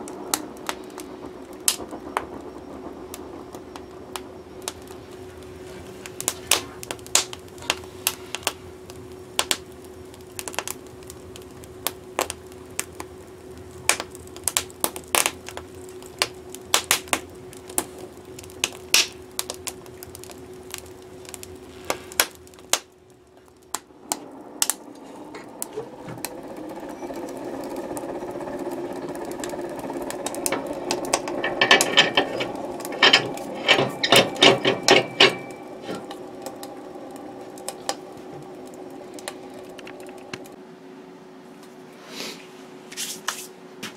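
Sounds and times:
rush of fire draft: 0.0s - 40.6s
wood fire crackling and popping: 0.0s - 40.6s
stove door shutting: 29.1s - 38.6s.

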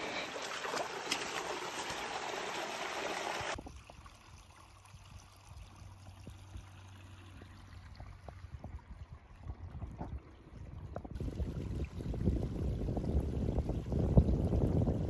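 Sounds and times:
running water: 0.0s - 15.0s.

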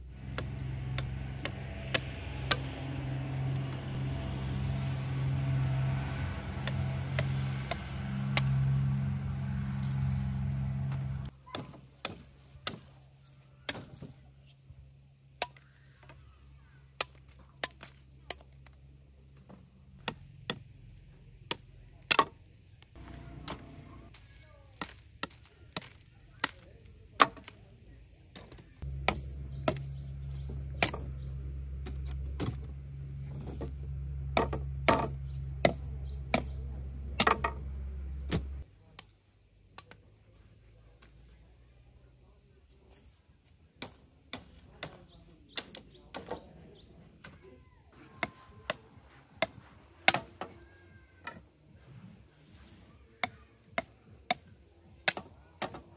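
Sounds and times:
low steady hum: 0.0s - 11.4s, 23.0s - 24.1s
blade chopping sugarcane: 0.2s - 13.0s, 20.0s - 20.7s, 21.4s - 22.4s, 23.0s - 27.7s, 28.3s - 39.1s, 43.8s - 46.9s, 48.0s - 50.5s, 53.2s - 55.9s.

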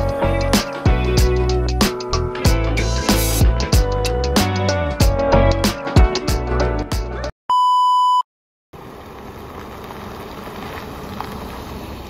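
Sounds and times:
background music with a beat: 0.0s - 7.3s
electronic beep: 7.5s - 8.2s.

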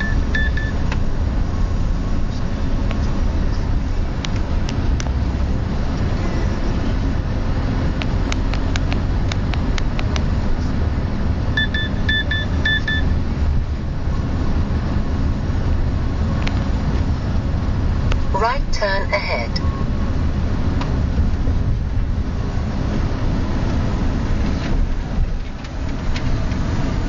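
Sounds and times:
short high beeps: 0.0s - 0.8s, 11.6s - 13.1s
car engine and tyre rumble: 0.0s - 27.0s.

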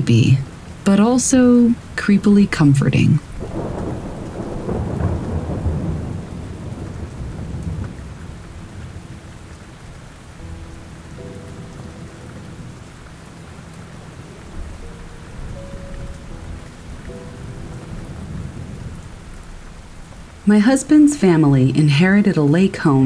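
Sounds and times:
steady rain: 0.0s - 23.0s
thunder rolling: 3.3s - 13.0s, 13.9s - 21.7s.

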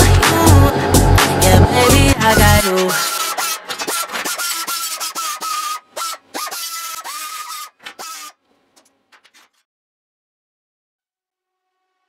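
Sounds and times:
metal scraping with high squeal: 3.0s - 8.4s.

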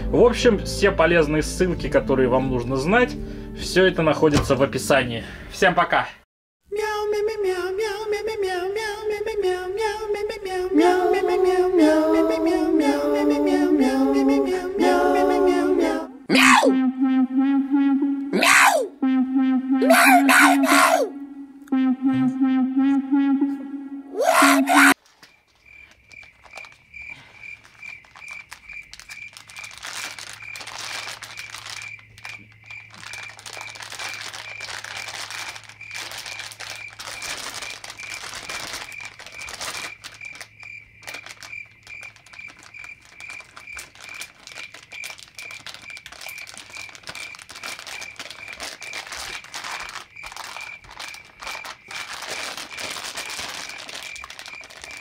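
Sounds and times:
high beeping: 16.4s - 25.0s
foil pouches crinkling: 25.0s - 55.0s.

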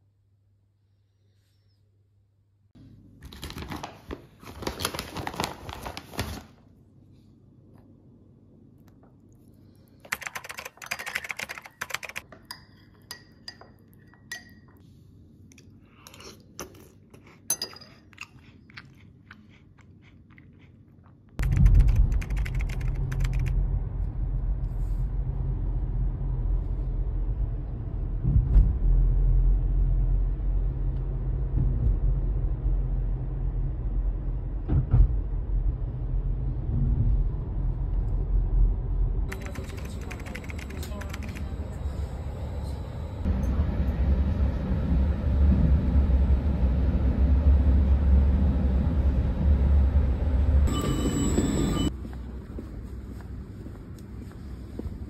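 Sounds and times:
teaspoon clinking against mug: 10.8s - 14.8s, 17.5s - 18.3s
car engine and tyre rumble: 22.8s - 39.3s.

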